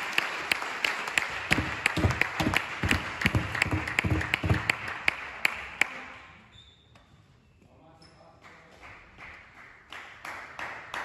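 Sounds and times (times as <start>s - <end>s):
crowd applause and cheering: 0.0s - 6.1s
low thuds: 1.5s - 4.9s.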